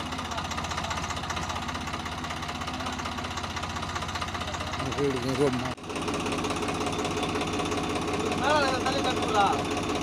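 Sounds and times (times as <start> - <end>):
tractor diesel engine idling: 0.0 - 10.0.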